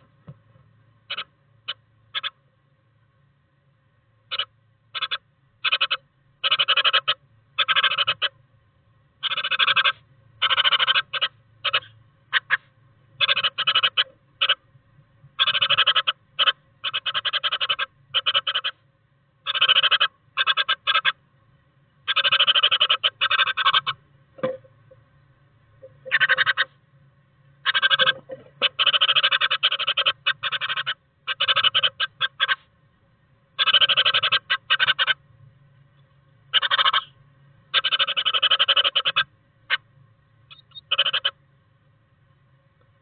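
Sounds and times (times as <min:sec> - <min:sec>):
bird scrabbling in nest moss: 0:25.8 - 0:26.7, 0:27.6 - 0:32.6.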